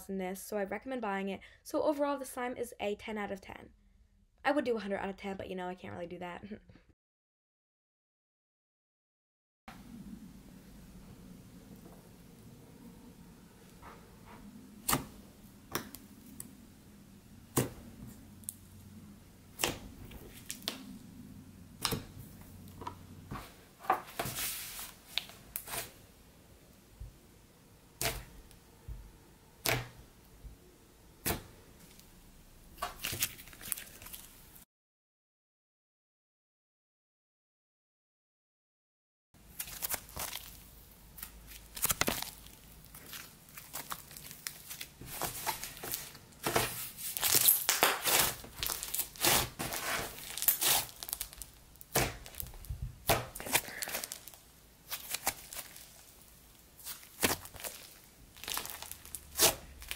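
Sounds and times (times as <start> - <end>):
slime crackling and popping: 39.6 - 40.6, 41.2 - 46.2, 47.0 - 59.9.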